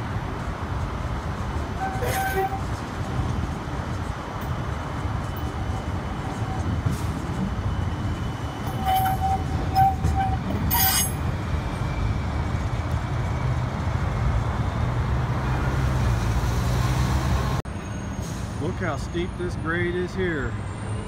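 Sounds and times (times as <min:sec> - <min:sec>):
road traffic: 0:00.0 - 0:21.0
tram rumbling: 0:00.0 - 0:21.0.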